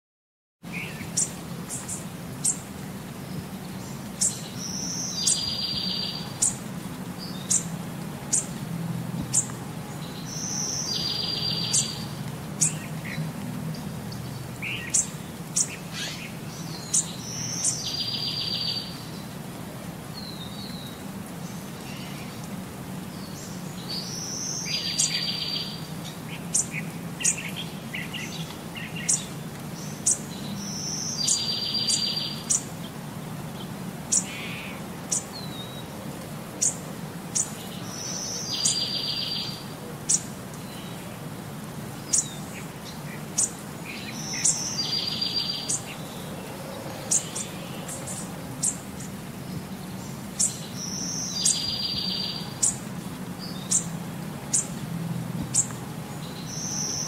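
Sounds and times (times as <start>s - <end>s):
bird chirping: 0.7s - 2.7s, 3.3s - 6.6s, 7.2s - 7.7s, 9.3s - 19.3s, 23.1s - 32.7s, 36.6s - 41.0s, 42.0s - 54.8s.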